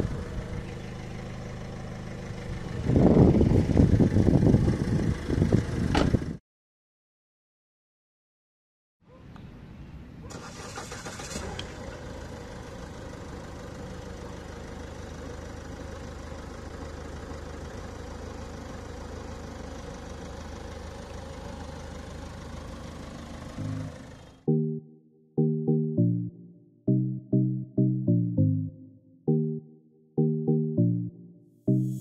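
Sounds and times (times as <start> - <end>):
car engine starting and idling: 0.0 - 6.4, 10.3 - 24.8.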